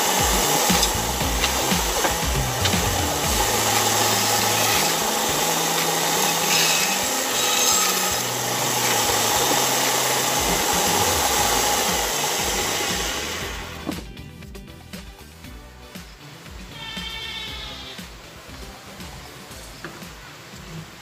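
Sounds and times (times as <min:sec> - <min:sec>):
band saw cutting wood: 0:00.0 - 0:14.0.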